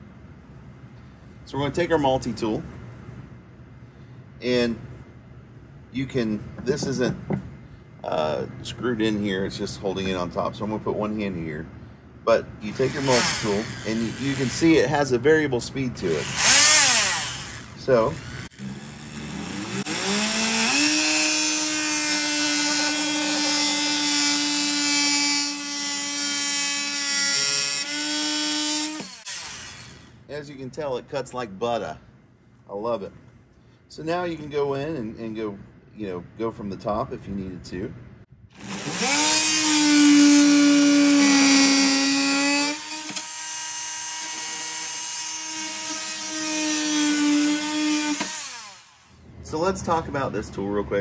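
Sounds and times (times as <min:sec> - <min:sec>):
oscillating tool buzzing: 0:12.7 - 0:14.9, 0:16.1 - 0:30.2, 0:38.6 - 0:49.2
blade rasping through wood: 0:12.8 - 0:14.8, 0:16.2 - 0:30.1, 0:38.6 - 0:48.9.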